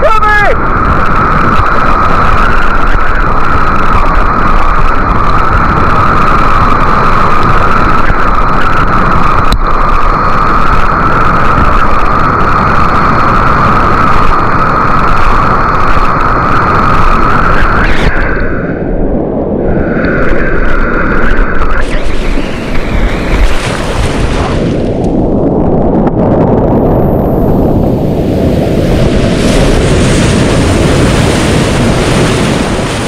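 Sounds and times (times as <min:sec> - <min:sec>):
whitewater rushing: 0:20.2 - 0:25.1.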